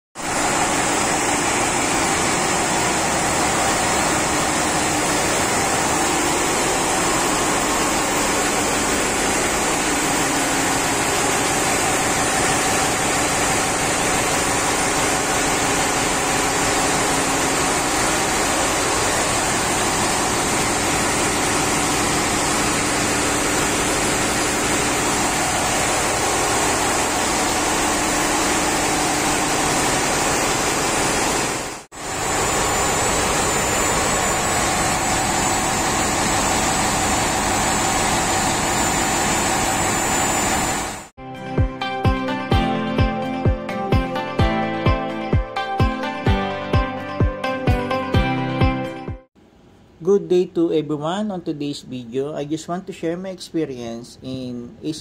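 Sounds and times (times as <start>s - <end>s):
diesel generators running: 0.2s - 41.1s.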